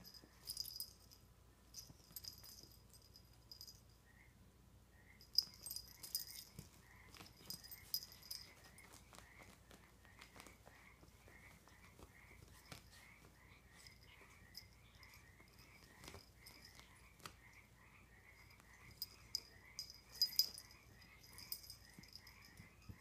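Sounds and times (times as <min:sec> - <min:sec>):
faint regular chirp: 0:00.0 - 0:23.0
kitten scratching on blanket: 0:05.9 - 0:17.6.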